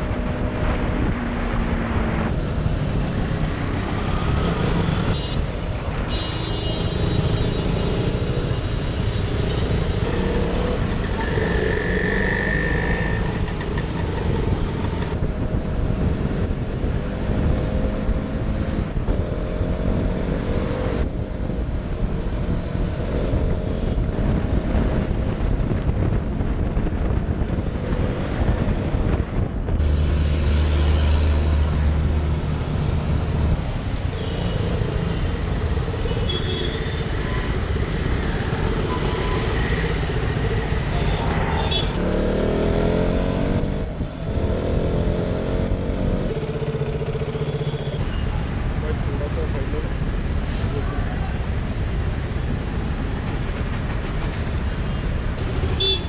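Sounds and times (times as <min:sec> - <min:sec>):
wind rumble: 0:20.9 - 0:34.0.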